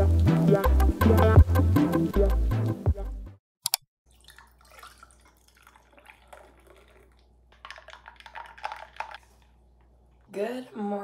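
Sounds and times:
milk pouring over ice: 4.1 - 9.6.

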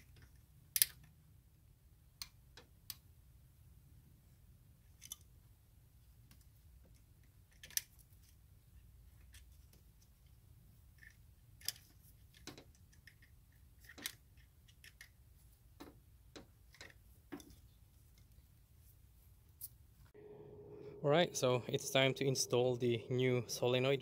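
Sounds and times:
pliers and metal parts clicking: 0.0 - 1.1, 7.5 - 8.3.

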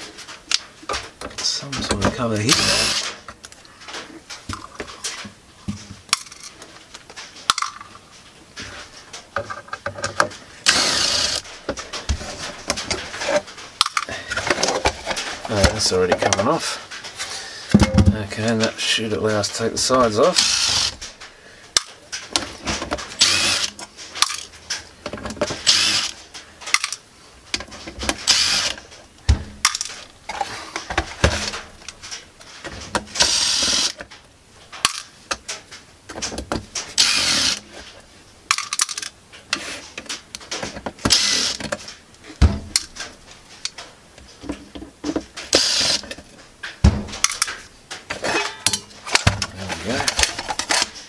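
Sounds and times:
cordless drill running: 2.5 - 3.0, 10.6 - 11.4, 20.4 - 21.0, 23.2 - 23.7, 25.6 - 26.2, 28.2 - 28.8, 33.2 - 34.0, 37.0 - 37.6, 41.1 - 41.6, 45.6 - 46.0.

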